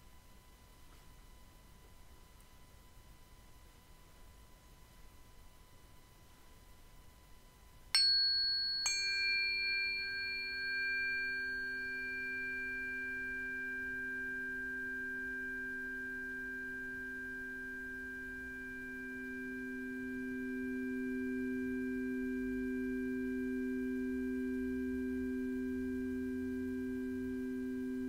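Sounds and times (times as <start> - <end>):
metal singing bowls struck ringing: 8.0 - 20.2.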